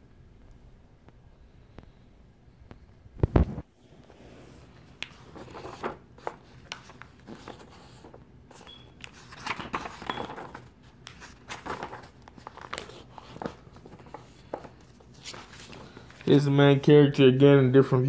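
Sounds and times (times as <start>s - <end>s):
paper rustling and tapping: 9.0s - 16.2s.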